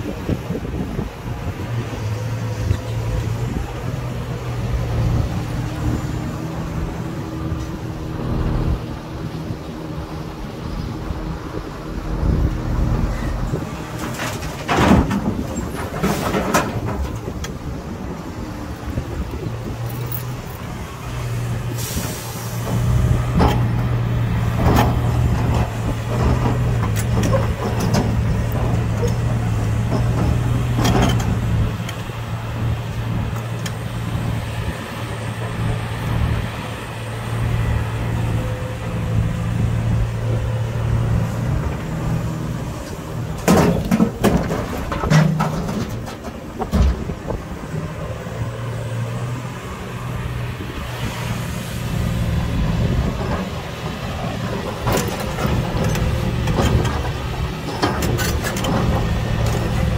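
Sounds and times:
excavator diesel engine running: 0:00.0 - 0:59.9
rock crashing into steel truck bed: 0:43.4 - 0:47.2.

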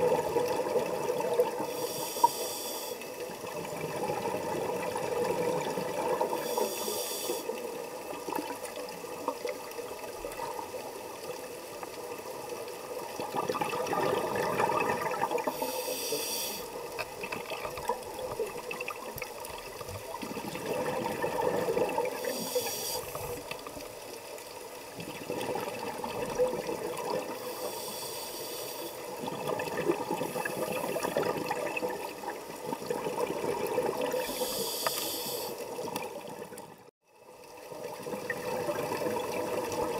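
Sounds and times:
diver breathing through regulator: 0:01.6 - 0:03.1, 0:06.3 - 0:07.6, 0:15.4 - 0:16.8, 0:22.2 - 0:23.4, 0:27.3 - 0:29.1, 0:34.2 - 0:35.7
bubbling water: 0:03.3 - 0:06.4, 0:07.8 - 0:15.6, 0:16.9 - 0:22.4, 0:24.9 - 0:27.5, 0:29.0 - 0:34.3, 0:37.5 - 0:39.9.

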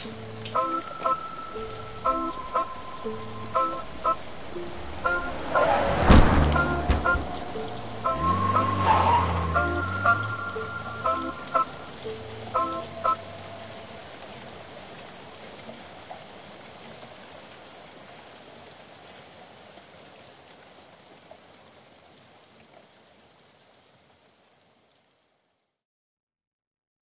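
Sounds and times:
water drops ticking: 0:00.0 - 0:05.5, 0:06.5 - 0:15.5
steady rain falling: 0:00.0 - 0:25.7.

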